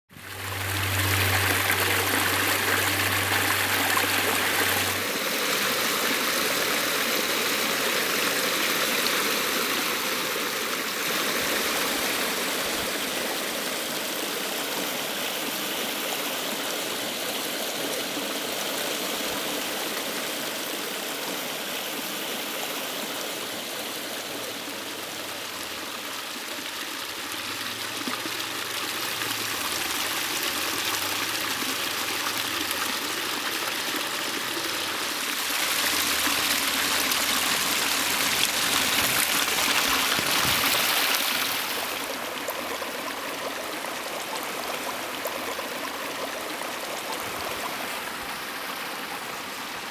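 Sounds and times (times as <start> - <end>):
water splashing over rocks: 27.4 - 48.3.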